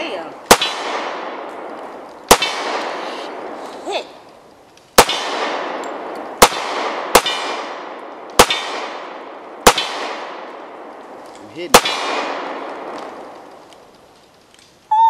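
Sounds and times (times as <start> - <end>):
pistol shots with echo: 0.5 - 1.6, 2.2 - 3.6, 5.0 - 10.7, 11.7 - 13.0.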